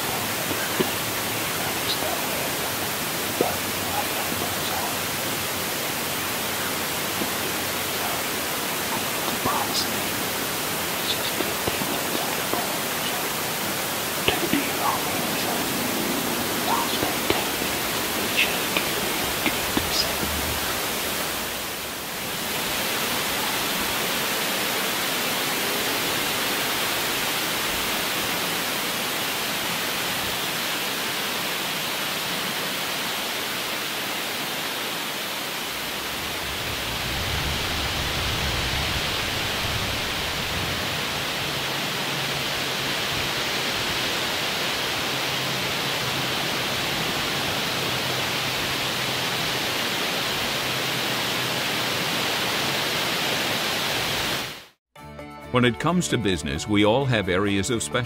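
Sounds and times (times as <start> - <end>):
wind in the woods: 0.0 - 54.7
wind gusts on microphone: 35.9 - 41.7.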